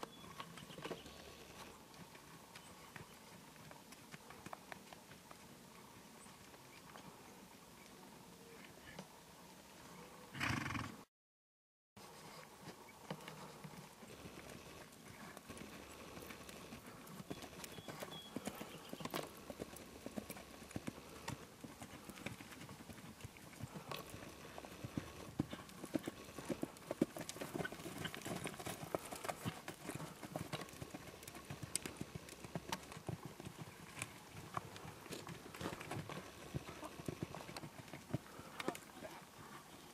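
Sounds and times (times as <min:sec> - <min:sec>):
horse hooves on dirt: 0:00.0 - 0:09.2, 0:12.0 - 0:39.9.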